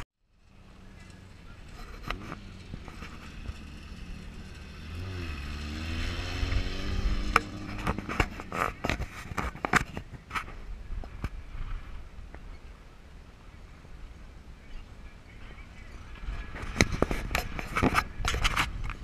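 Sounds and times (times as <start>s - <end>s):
engine revving and accelerating: 0.6s - 9.1s.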